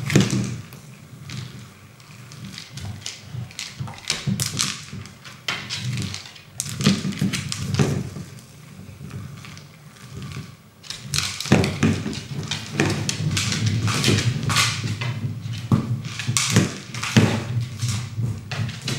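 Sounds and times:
dog claws clicking on wood: 0:01.3 - 0:08.0.

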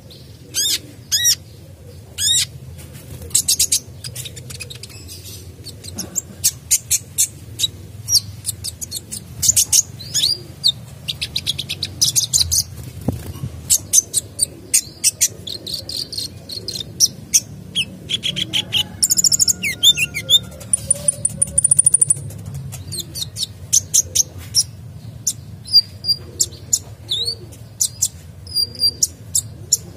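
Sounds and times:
bird singing high chips and trills: 0:19.0 - 0:24.0.

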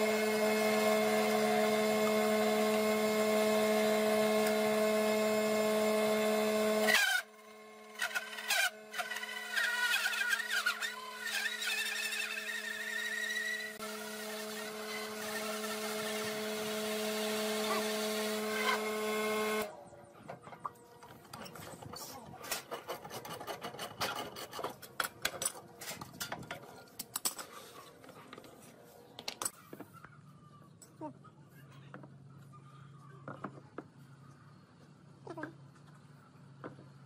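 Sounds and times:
hole saw cutting wood: 0:00.0 - 0:07.3, 0:07.9 - 0:19.7
drill press motor hum: 0:00.0 - 0:19.7.

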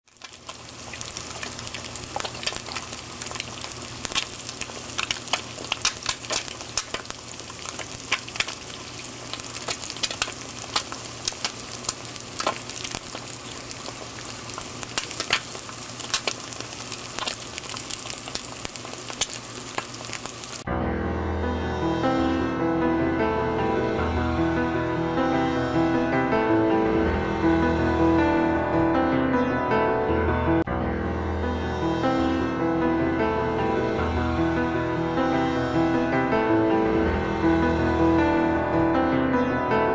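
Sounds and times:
eggs sizzling in a pan: 0:00.0 - 0:20.7
fat popping and crackling: 0:00.0 - 0:20.7.

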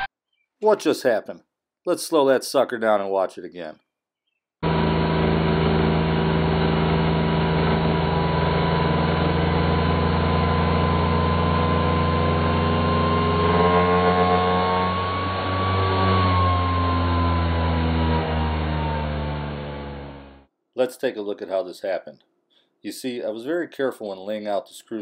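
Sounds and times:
wood router low drone: 0:04.6 - 0:20.5.

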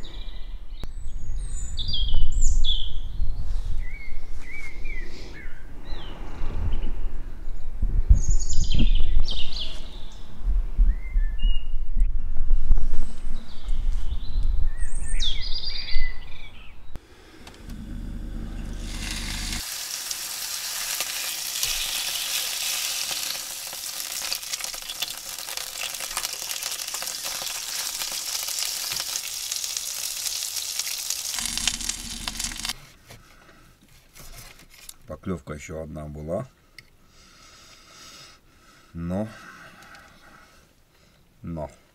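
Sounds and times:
low rumble: 0:17.2 - 0:19.6, 0:31.3 - 0:32.7
steak sizzling in pan: 0:18.7 - 0:32.8.

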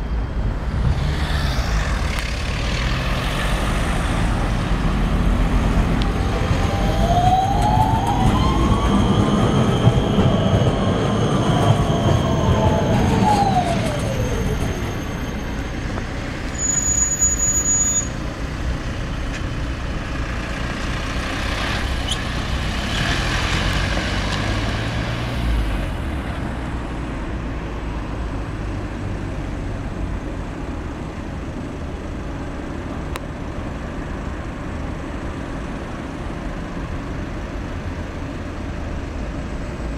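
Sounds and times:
tram passing over rails: 0:00.0 - 0:28.6
street traffic: 0:00.0 - 0:39.9.

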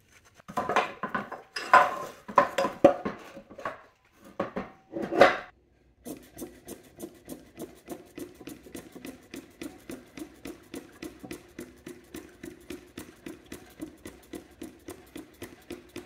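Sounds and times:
metal parts clanking on workbench: 0:00.6 - 0:05.5.

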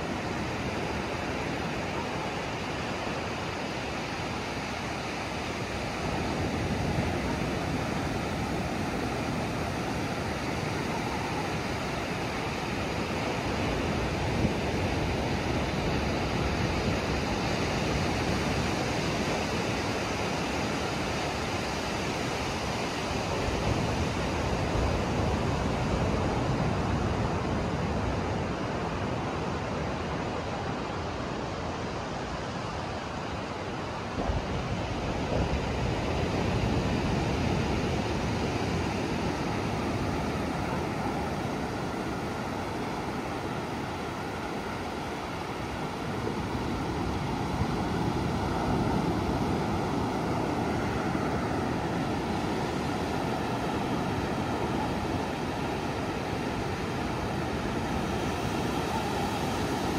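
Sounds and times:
ocean surf breaking: 0:33.9 - 0:59.9.

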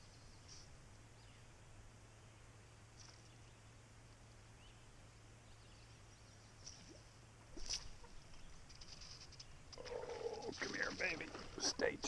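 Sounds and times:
faint bird chirps: 0:00.0 - 0:03.8.

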